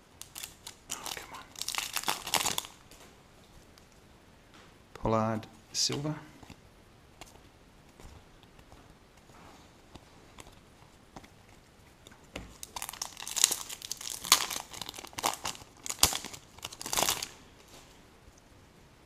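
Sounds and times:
wrapper tearing and crinkling: 0.2 - 3.0, 12.5 - 17.4.

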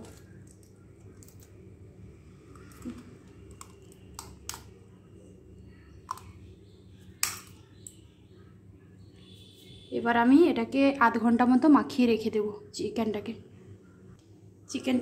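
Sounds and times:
faint low hum: 0.0 - 15.0
eggshell clicking on steel bowl: 2.6 - 4.7, 7.2 - 8.0.

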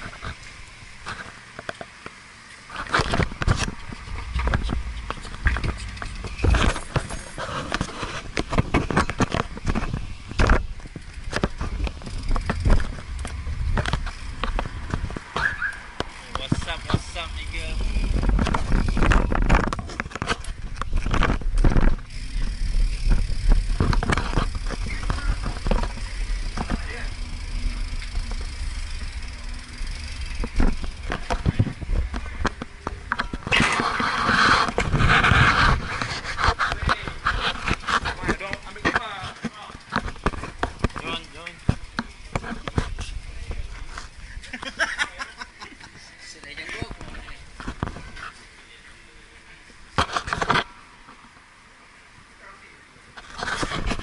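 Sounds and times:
bike clanking and rattling: 0.0 - 48.6
wind rumble: 3.1 - 38.2.

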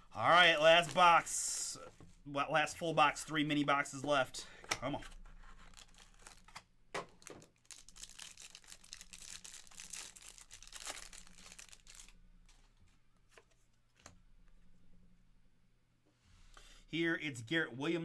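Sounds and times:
wrapper tearing and crinkling: 5.5 - 12.2.

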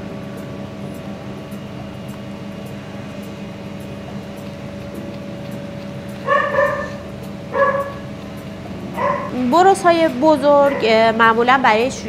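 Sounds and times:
steady machine hum: 0.0 - 12.0
small dog whining yelps: 6.3 - 7.0, 7.6 - 8.0, 9.0 - 9.4.

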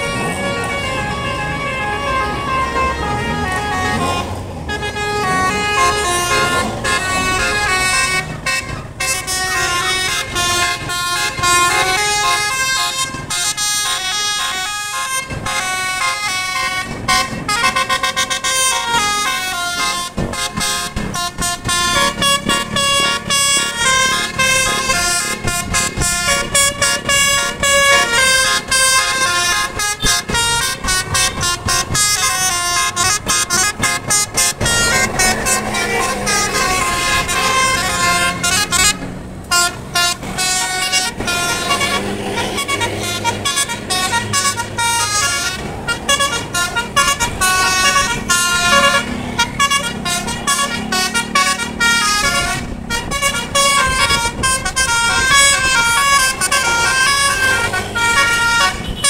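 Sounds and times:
musical air horn melody: 0.0 - 59.0.

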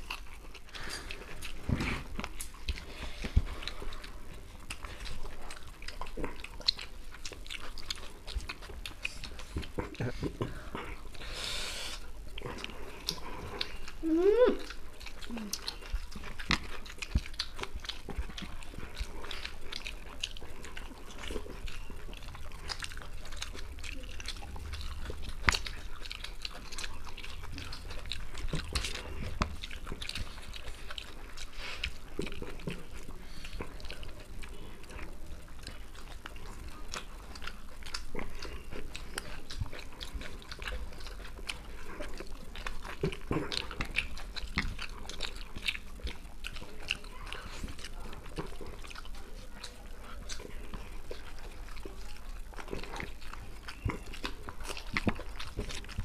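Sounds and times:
people chewing and lip smacking: 0.0 - 56.0.

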